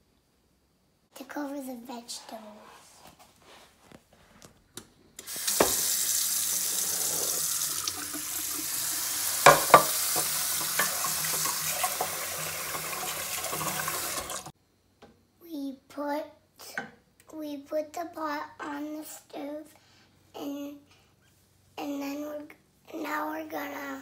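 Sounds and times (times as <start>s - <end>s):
tap water filling a metal pot: 5.2s - 14.5s
wooden spoon knocking in pot: 9.4s - 11.0s.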